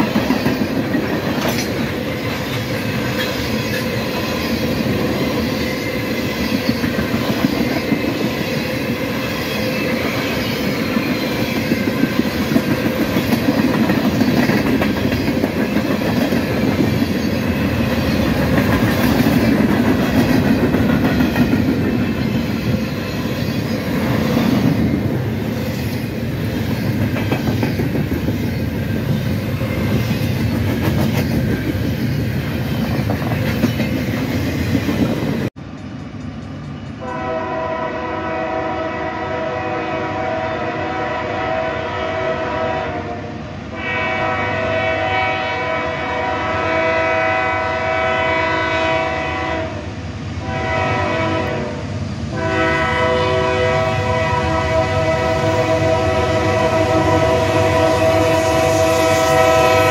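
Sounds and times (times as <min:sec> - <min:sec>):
train wheel clatter: 0:00.0 - 0:37.0
locomotive air horn blasts: 0:37.0 - 0:59.9.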